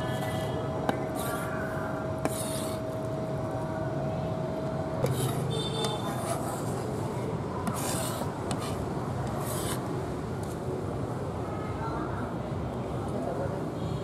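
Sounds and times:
cleaver scraping wooden block: 0.9 - 1.6, 2.2 - 2.8, 7.6 - 9.9.

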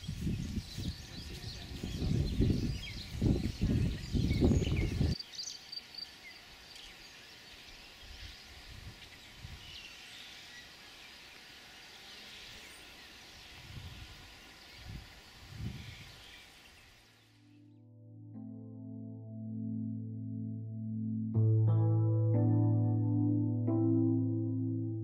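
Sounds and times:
wind buffeting microphone: 0.0 - 5.2, 13.5 - 16.2
small birds chirping: 0.0 - 17.3.

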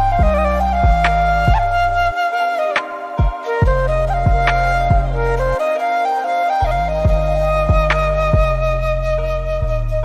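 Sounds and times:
low drum beats: 0.0 - 2.1, 3.2 - 5.6, 6.6 - 8.9
held melody line: 0.0 - 10.0.

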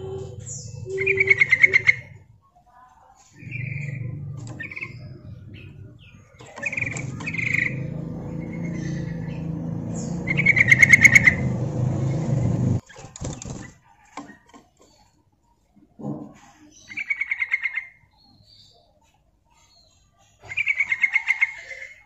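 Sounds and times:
low steady hum: 0.0 - 2.4, 3.4 - 12.8
bird rapid chattering call: 3.4 - 12.8
wing flutters and light knocks: 12.8 - 15.0.

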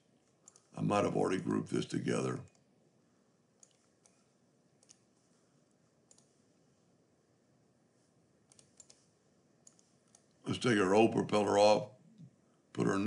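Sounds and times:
computer mouse clicks: 0.2 - 0.7, 3.6 - 4.2, 4.8 - 5.1, 6.1 - 6.4, 8.5 - 10.4.

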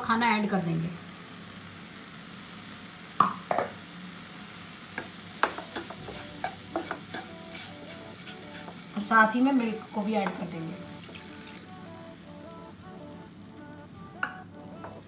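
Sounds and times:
faint frying sizzle: 0.0 - 15.0
spatula scraping a pan: 5.0 - 8.9.

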